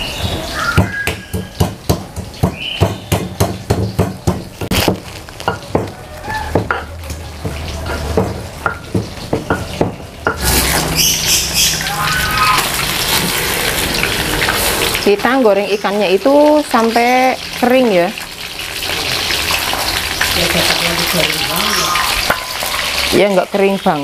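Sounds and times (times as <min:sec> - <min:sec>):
fish sizzling in hot oil: 0:00.0 - 0:24.0
stone pestle pounding in mortar: 0:00.8 - 0:10.5.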